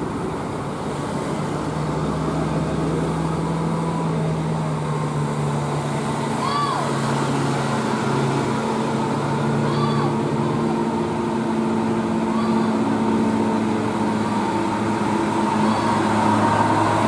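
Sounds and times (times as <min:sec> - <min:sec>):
bus and car engines humming: 0:00.0 - 0:17.0
road noise: 0:00.0 - 0:17.0.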